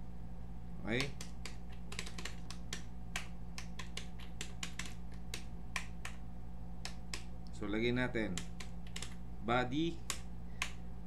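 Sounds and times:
steady low hum: 0.0s - 11.0s
keyboard key clicks: 1.0s - 6.2s, 8.3s - 9.2s.

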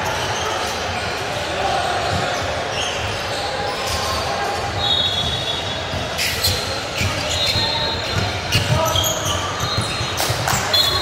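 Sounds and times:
crowd voices: 0.0s - 11.0s
sneaker squeaks: 0.0s - 11.0s
basketball bouncing on court: 5.0s - 11.0s.

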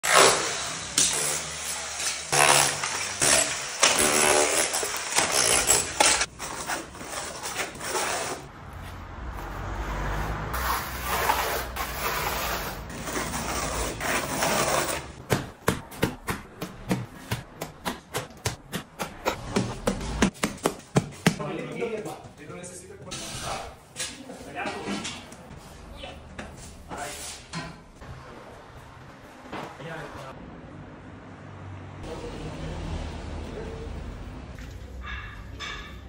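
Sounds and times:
electric demolition hammer chipping brick: 0.0s - 6.3s
trowel scraping mortar: 0.0s - 8.5s, 10.6s - 15.2s.

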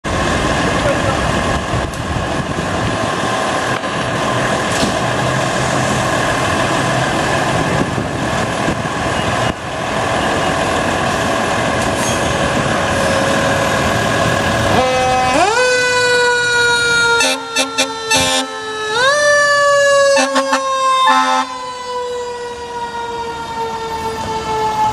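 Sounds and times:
fire truck engine running: 0.0s - 24.9s
rising warning tone: 14.7s - 24.9s.

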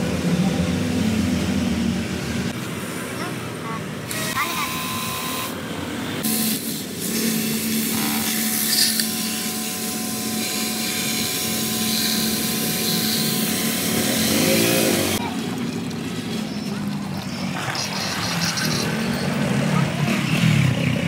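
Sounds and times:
pressure washer motor hum and hiss: 4.0s - 16.6s.

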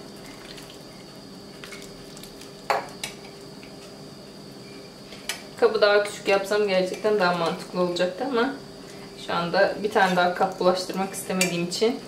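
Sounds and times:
faint hum: 0.0s - 12.0s
sauce pouring: 0.1s - 3.0s.

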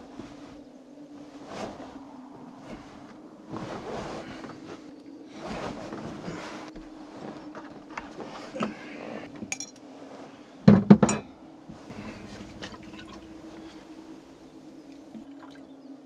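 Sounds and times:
glasses and bottle clinking: 9.5s - 9.8s, 11.0s - 11.3s.

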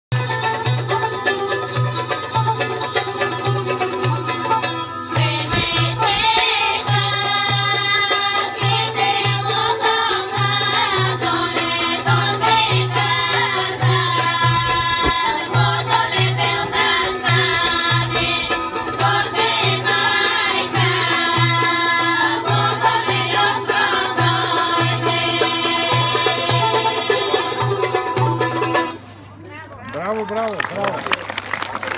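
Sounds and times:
women singing folk song: 5.1s - 28.7s.

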